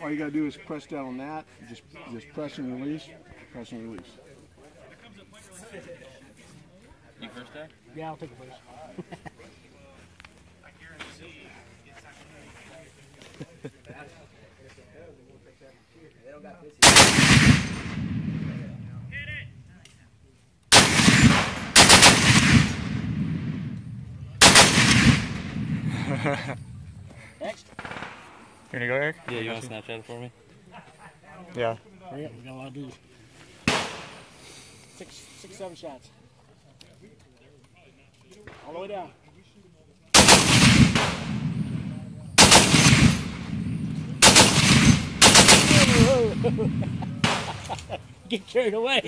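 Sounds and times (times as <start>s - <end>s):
heavy machine gun bursts with echo: 16.8s - 18.6s, 20.7s - 23.8s, 24.4s - 25.9s, 40.2s - 47.6s.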